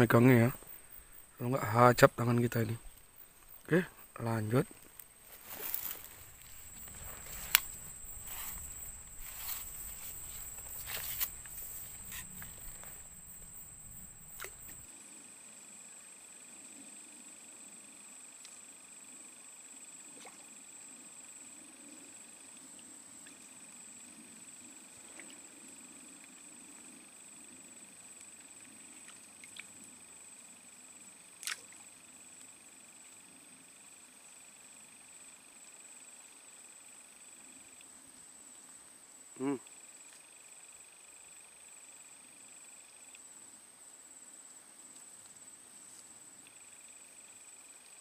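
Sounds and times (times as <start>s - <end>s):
lower insect tone: 0.0s - 48.0s
high-pitched insect drone: 5.3s - 14.9s.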